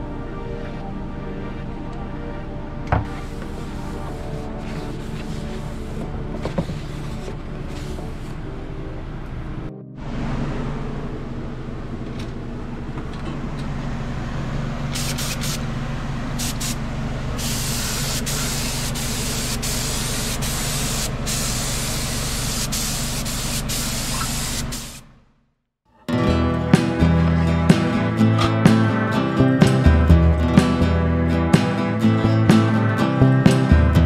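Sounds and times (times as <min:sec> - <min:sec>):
steady low hum: 0:00.0 - 0:25.2
spray gun hissing: 0:03.1 - 0:08.4, 0:15.0 - 0:15.6, 0:16.4 - 0:16.8, 0:17.4 - 0:25.0.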